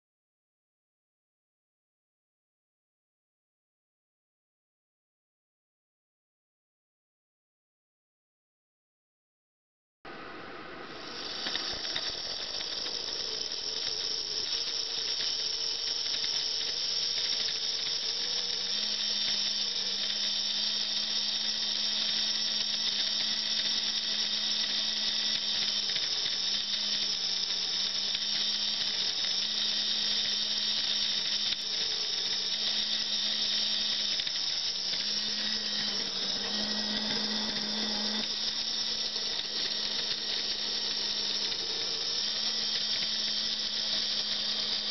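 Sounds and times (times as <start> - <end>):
high-pitched motor whine: 10.1 - 44.9
lower wavering hum: 24.0 - 44.9.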